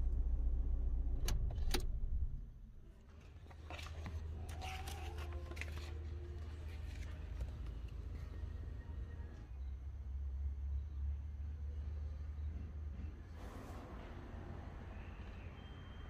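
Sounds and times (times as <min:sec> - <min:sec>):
low rumble inside car cabin: 0:00.0 - 0:09.6
paper pages rustling: 0:03.1 - 0:08.0.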